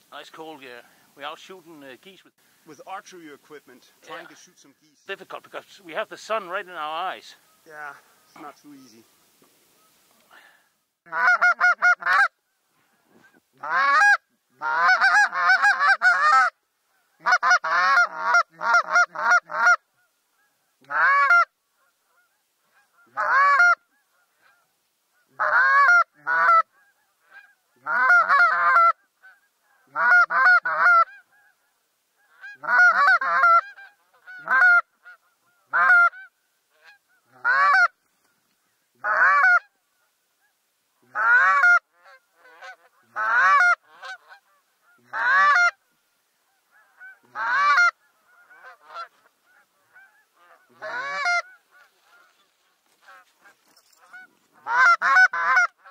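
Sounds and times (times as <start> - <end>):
geese honking: 0.2 - 10.5, 11.1 - 12.4, 13.1 - 55.9.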